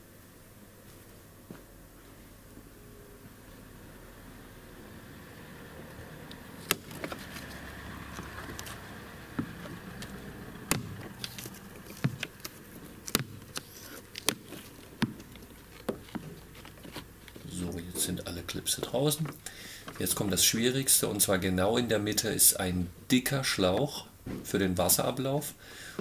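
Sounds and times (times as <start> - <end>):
plastic clips snapping out: 6.3 - 8.8, 9.4 - 17.4
plastic rustling and scraping: 6.6 - 20.5.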